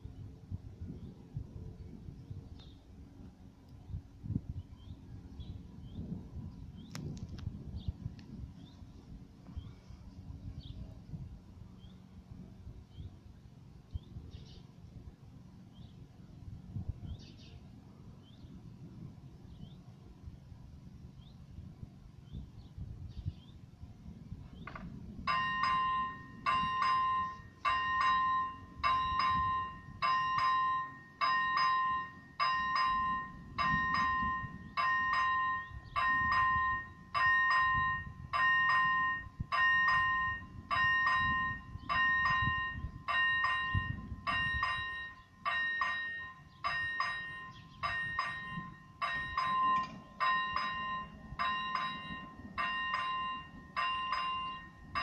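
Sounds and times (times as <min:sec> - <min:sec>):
level crossing warning bell: 0:24.7 - 0:55.0.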